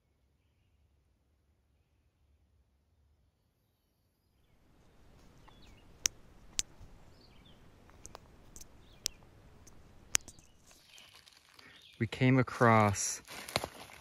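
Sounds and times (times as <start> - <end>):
faint bird chirps: 3.4 - 12.2
sharp irregular clicks: 5.4 - 7.0, 7.7 - 10.8.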